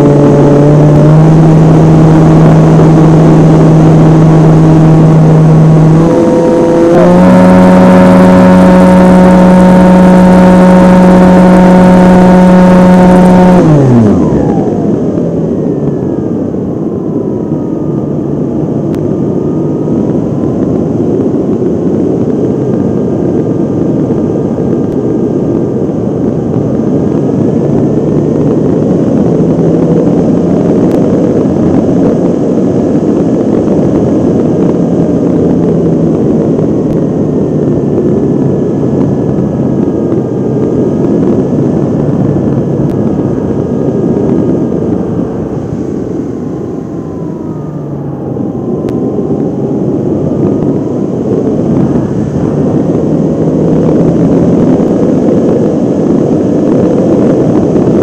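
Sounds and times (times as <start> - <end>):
model airplane motor whining: 0.0 - 21.6
faint wavering propeller tone: 0.0 - 58.0
wind rushing over camera: 0.0 - 58.0.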